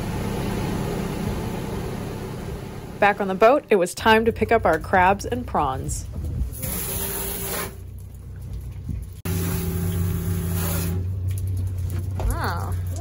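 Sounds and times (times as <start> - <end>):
boat engine humming: 0.0 - 5.9, 7.8 - 13.0.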